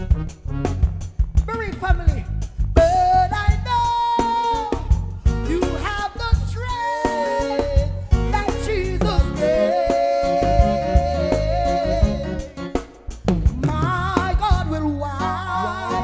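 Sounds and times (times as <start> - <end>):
bass guitar: 0.0 - 16.0
person singing long notes: 9.0 - 12.5
drum kit hits: 10.5 - 14.7.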